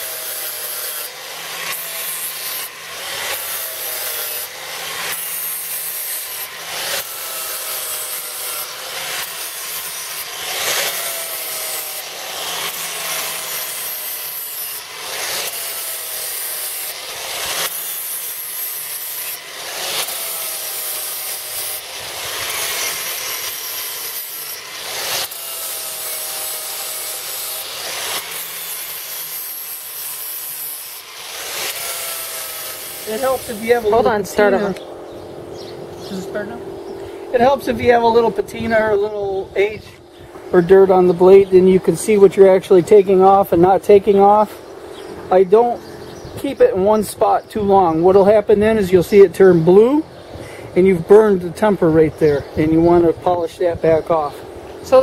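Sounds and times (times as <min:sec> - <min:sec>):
angle grinder sharpening steel: 0:00.0 - 0:34.8.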